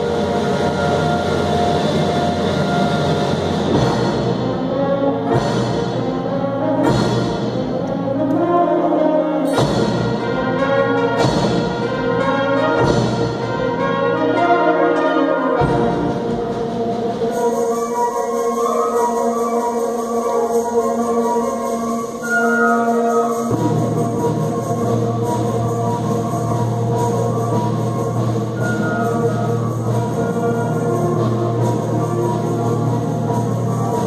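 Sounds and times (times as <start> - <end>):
percussion strikes with crashes: 0.0 - 8.4, 9.5 - 14.0, 15.6 - 17.9
wind band sustained chords: 0.0 - 34.0.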